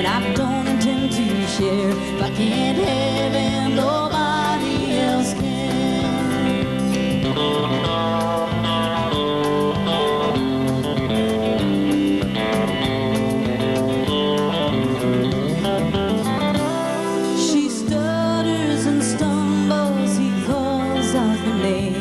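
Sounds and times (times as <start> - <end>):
drums: 0.0 - 22.0
electric guitars playing: 0.0 - 22.0.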